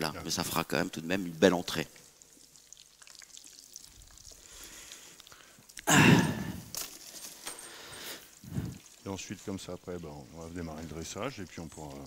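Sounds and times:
food deep-frying in oil: 0:00.0 - 0:06.4, 0:07.7 - 0:12.0
person sighing: 0:05.8 - 0:06.7.

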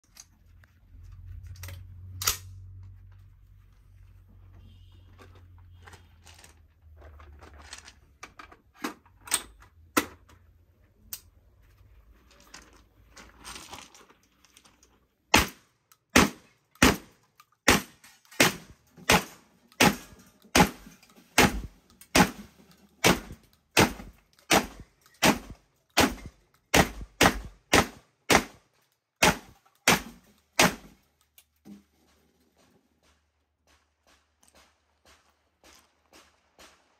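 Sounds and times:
metallic clicks of magazine handling: 0:00.0 - 0:00.4, 0:01.4 - 0:02.9, 0:11.1 - 0:11.3, 0:15.8 - 0:18.4, 0:19.3 - 0:26.7, 0:28.7 - 0:31.6
shotgun firing: 0:15.3 - 0:15.6, 0:16.2 - 0:17.1, 0:17.7 - 0:28.6, 0:29.2 - 0:31.0.

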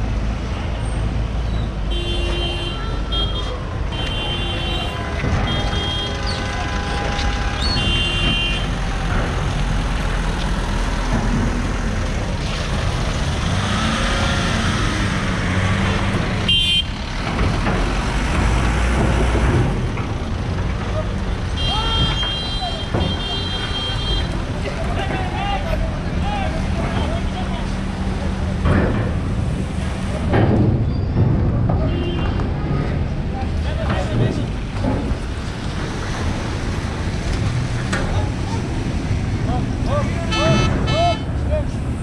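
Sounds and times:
low rumble of vehicle engines: 0:00.0 - 0:42.0
horn short toots: 0:40.3 - 0:41.3.

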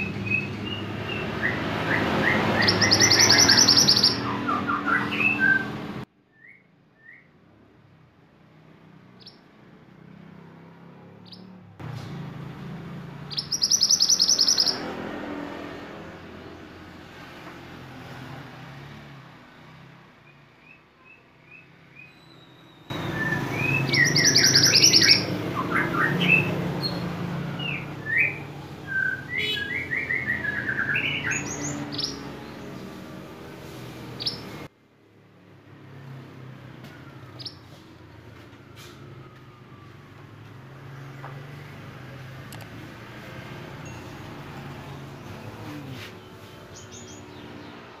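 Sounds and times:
bird trills and chirps: 0:00.0 - 0:05.8, 0:13.2 - 0:15.0, 0:20.3 - 0:33.0, 0:34.1 - 0:34.7, 0:37.4 - 0:37.7, 0:43.7 - 0:47.8.

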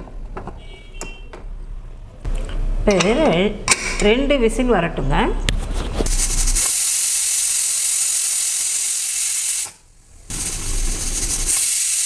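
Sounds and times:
pressure cooker steam hissing: 0:06.0 - 0:12.0.

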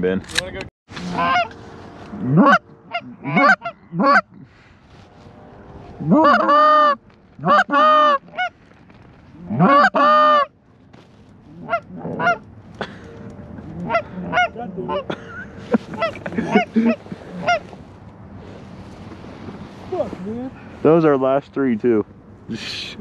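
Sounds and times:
geese honking: 0:00.9 - 0:04.3, 0:05.9 - 0:08.6, 0:09.4 - 0:10.5, 0:11.5 - 0:12.5, 0:13.1 - 0:17.8.

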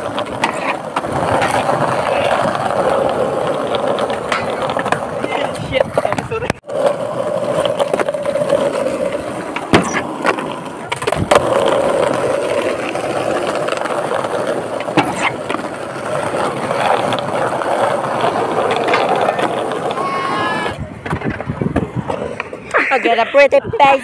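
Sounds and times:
skateboard clacks: 0:00.0 - 0:22.8
skateboard wheels rolling on pavement: 0:00.0 - 0:24.0.

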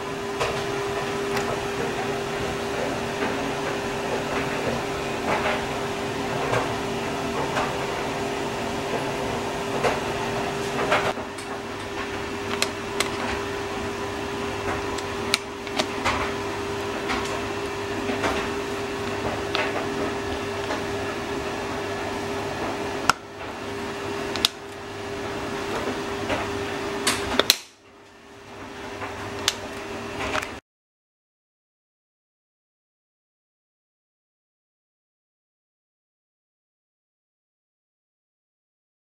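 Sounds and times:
steady mechanical hum: 0:00.0 - 0:30.6.

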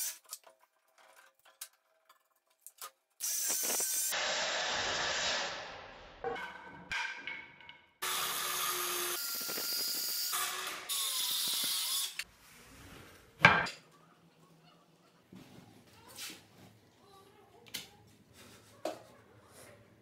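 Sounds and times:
circular saw cutting wood: 0:03.2 - 0:06.0, 0:08.0 - 0:12.3.

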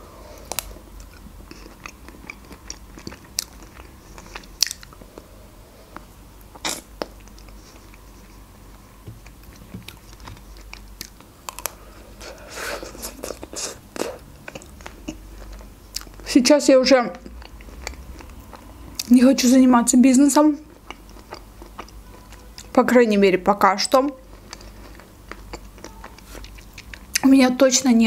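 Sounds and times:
chewing: 0:00.3 - 0:05.3, 0:05.9 - 0:16.3, 0:17.1 - 0:19.1, 0:20.6 - 0:22.8, 0:24.1 - 0:27.2
chocolate shell crunching: 0:09.2 - 0:11.8.

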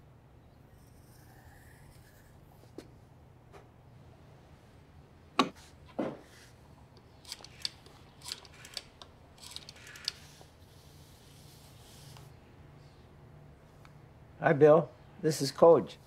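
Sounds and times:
rotary dial clicking: 0:07.2 - 0:10.3.

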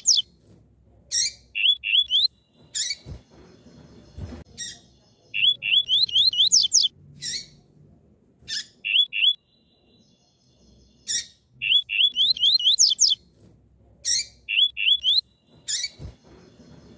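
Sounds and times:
bird chirping: 0:00.0 - 0:00.3, 0:01.1 - 0:07.7, 0:08.4 - 0:13.3, 0:14.0 - 0:16.9.

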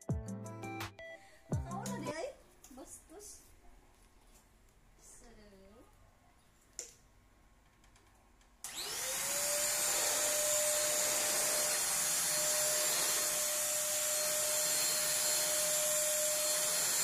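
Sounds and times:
vacuum cleaner running: 0:08.6 - 0:17.0.

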